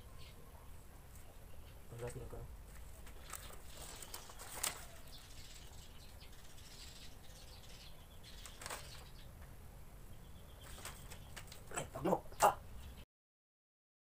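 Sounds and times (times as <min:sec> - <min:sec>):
paper and plastic rustling: 0:02.7 - 0:05.6, 0:08.4 - 0:09.1, 0:10.6 - 0:11.7.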